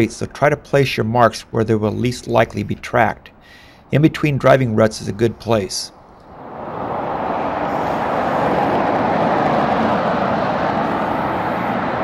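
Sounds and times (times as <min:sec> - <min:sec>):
road traffic passing: 0:05.0 - 0:12.0.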